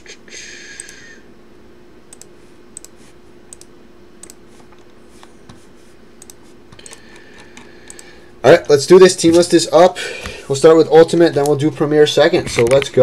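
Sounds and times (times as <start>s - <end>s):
faint steady hum: 0.0s - 13.0s
computer mouse clicking: 2.1s - 5.6s, 6.2s - 8.1s.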